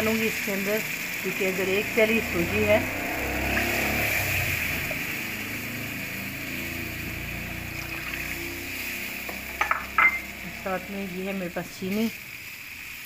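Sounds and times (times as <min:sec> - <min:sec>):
oil sizzling and bubbling in pan: 0:00.0 - 0:13.0.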